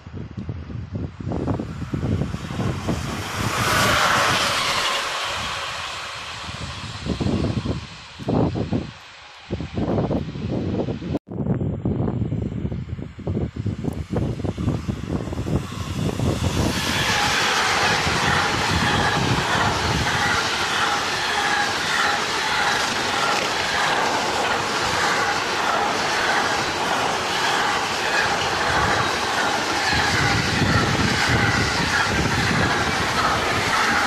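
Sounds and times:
freight train passing: 0:00.0 - 0:34.0
wheels rushing on rail: 0:00.0 - 0:34.0
wheels clacking over rail joints: 0:16.7 - 0:34.0.

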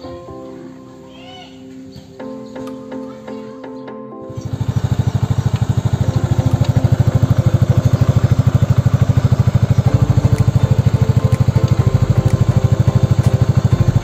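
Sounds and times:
scooter engine idling: 0:04.4 - 0:14.0.

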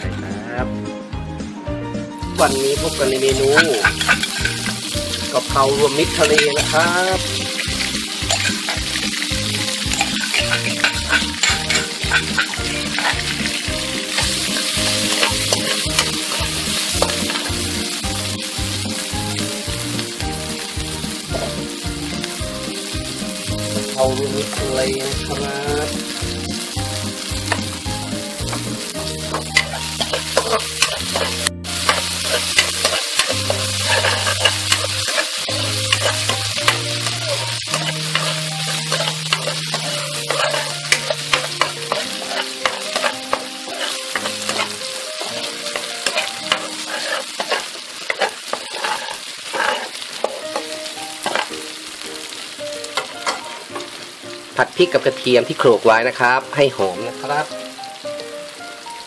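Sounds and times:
chili and garlic sizzling in oil: 0:02.2 - 0:59.0
metal ladle scraping wok: 0:02.4 - 0:19.1, 0:27.2 - 0:51.6, 0:52.9 - 0:53.9.

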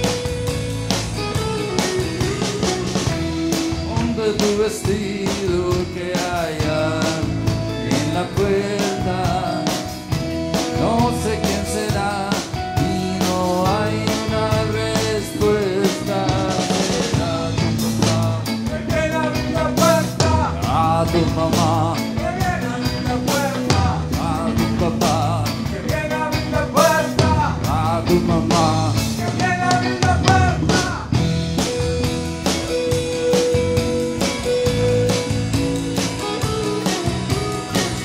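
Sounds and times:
rock band playing: 0:00.0 - 0:38.0
man singing: 0:03.6 - 0:31.3.

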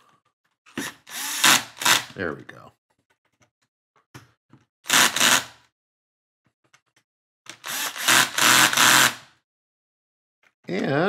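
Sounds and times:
cordless drill driving screws: 0:00.8 - 0:02.2, 0:04.9 - 0:05.6, 0:07.5 - 0:09.3
faint clicks of bit and parts: 0:02.9 - 0:04.7, 0:06.5 - 0:07.6.

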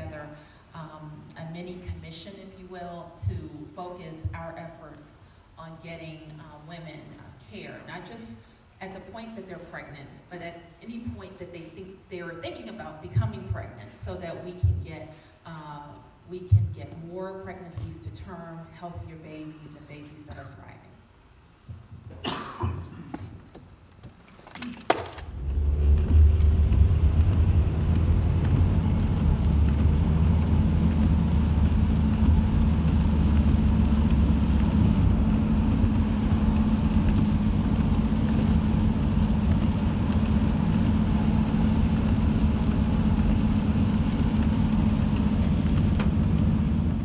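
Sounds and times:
car engine and tyres rumbling: 0:25.2 - 0:47.0.

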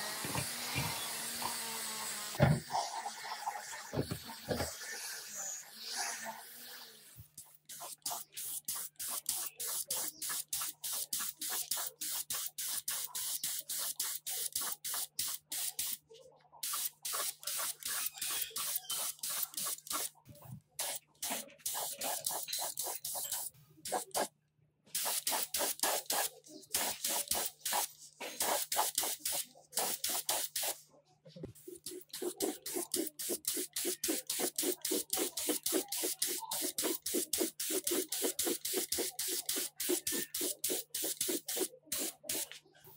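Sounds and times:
paint spray gun hissing in pulses: 0:07.7 - 0:16.0, 0:16.6 - 0:20.1, 0:20.8 - 0:24.3, 0:25.0 - 0:30.7, 0:31.9 - 0:42.5.

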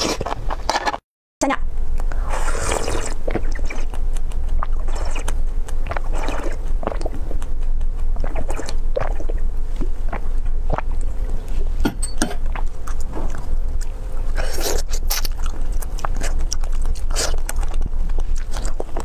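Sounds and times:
steady low rumble: 0:01.4 - 0:19.0
slurping drink: 0:02.2 - 0:03.9, 0:04.7 - 0:05.3, 0:05.9 - 0:07.1, 0:08.2 - 0:09.4.

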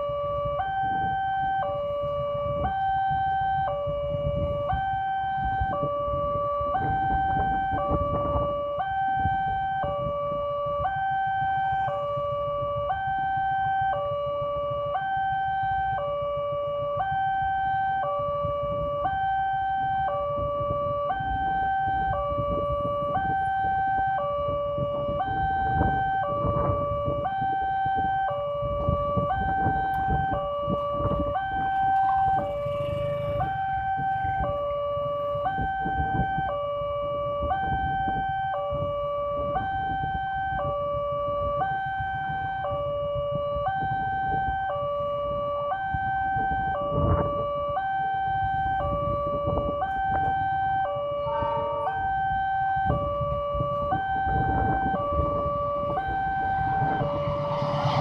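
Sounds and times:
level crossing two-tone alarm: 0:00.0 - 0:58.0
low steady rumble: 0:18.2 - 0:36.4, 0:50.3 - 0:58.0.

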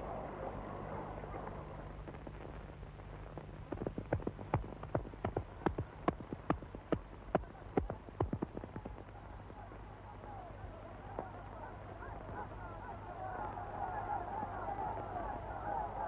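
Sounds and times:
hoofbeats clip-clopping: 0:03.3 - 0:09.2.

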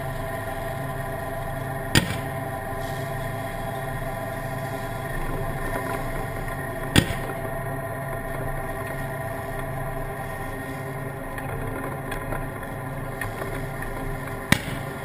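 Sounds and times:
tank engine running: 0:00.0 - 0:15.0
sharp crack: 0:01.9 - 0:02.6, 0:06.9 - 0:07.6, 0:14.5 - 0:15.0.

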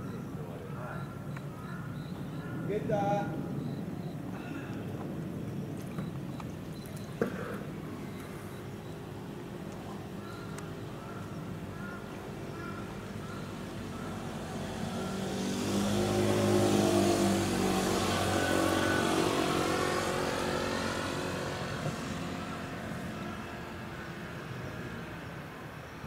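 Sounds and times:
motor engine passing by: 0:07.6 - 0:26.0.

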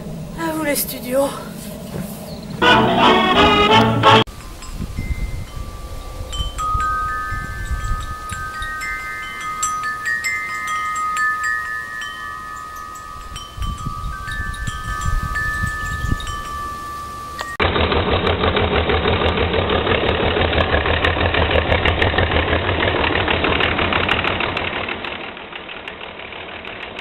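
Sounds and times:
metal wind chime ringing: 0:04.3 - 0:17.6.

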